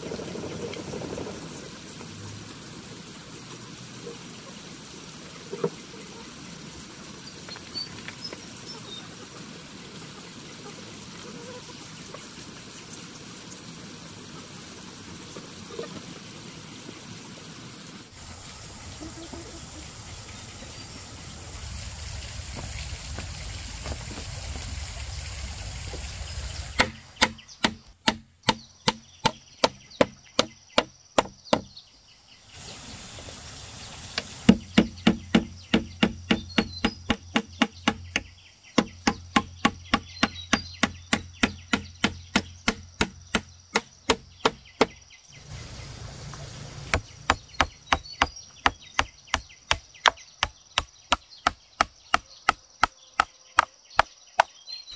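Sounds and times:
steady rushing noise: 19.9s - 27.2s
knife chopping on wooden board: 26.8s - 31.7s, 34.5s - 45.0s.

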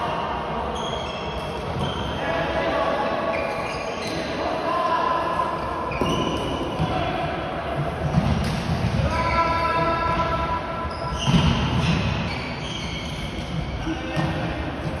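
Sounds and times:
shoes squeaking on court floor: 0.1s - 2.3s, 3.2s - 4.5s, 5.5s - 6.9s, 8.1s - 15.0s.

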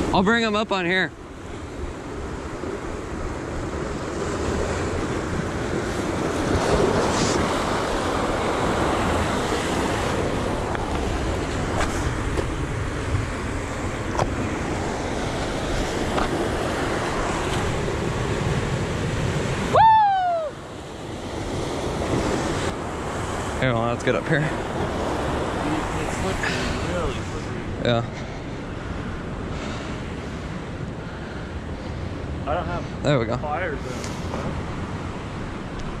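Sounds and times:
wind buffeting microphone: 1.1s - 36.0s
surf breaking against rocks: 21.1s - 31.1s.

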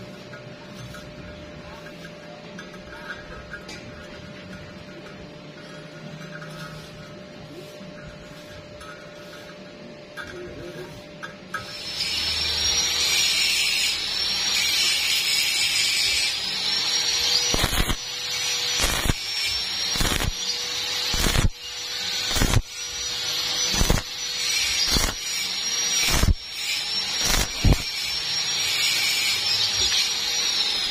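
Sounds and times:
welding arc crackling and hissing: 0.0s - 30.9s
sharp welding arc cracks: 11.6s - 30.9s.

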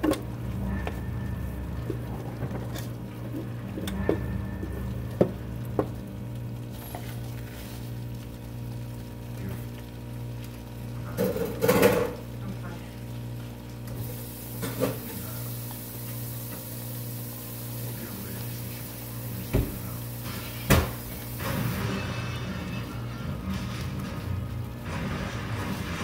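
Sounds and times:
low hum: 0.0s - 11.2s
rice sizzling in oil: 0.0s - 26.0s.

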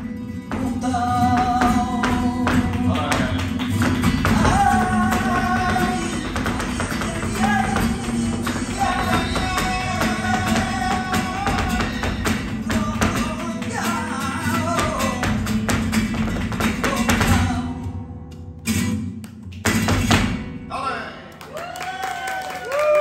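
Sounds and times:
acoustic guitar: 0.0s - 21.5s
person singing: 0.4s - 15.5s
dancer's feet stamping: 0.4s - 17.8s, 19.6s - 20.5s
rhythmic hand-clapping: 0.6s - 17.6s.

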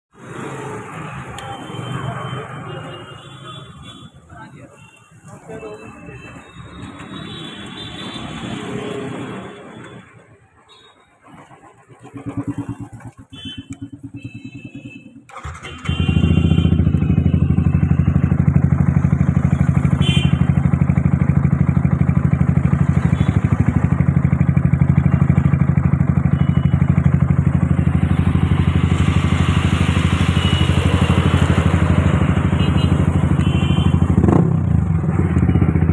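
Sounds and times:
motorcycle engine starting and idling: 11.1s - 35.9s.

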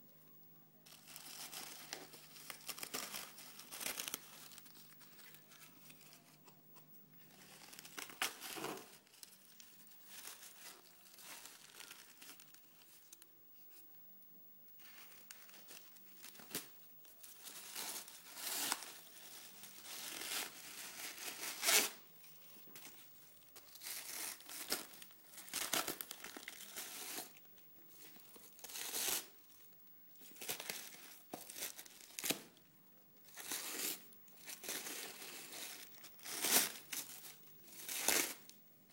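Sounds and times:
packing wrap tearing and crumpling: 0.9s - 6.2s, 7.3s - 12.9s, 15.2s - 22.0s, 23.6s - 29.4s, 30.2s - 32.5s, 33.2s - 38.6s.

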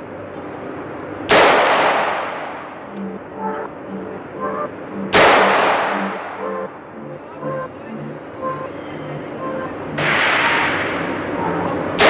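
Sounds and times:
pistol shots echoing: 1.3s - 2.4s.

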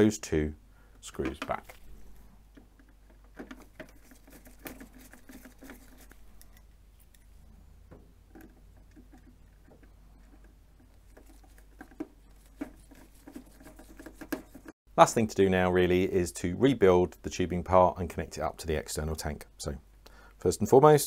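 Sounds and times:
screwdriver scratching and clicking: 3.4s - 7.4s, 8.3s - 14.7s.

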